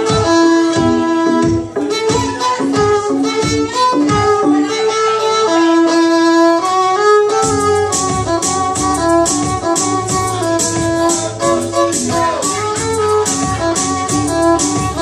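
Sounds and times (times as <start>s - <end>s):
steady drum beat: 0.0s - 4.5s, 7.4s - 15.0s
bass line: 0.0s - 6.5s, 7.3s - 15.0s
electric violin melody: 0.0s - 15.0s.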